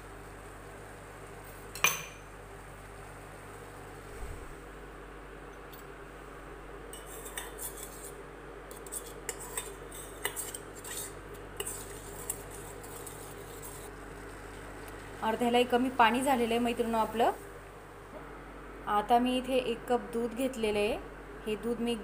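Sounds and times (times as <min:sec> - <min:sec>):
water boiling in steel pot: 0:00.0 - 0:05.2, 0:06.2 - 0:17.6.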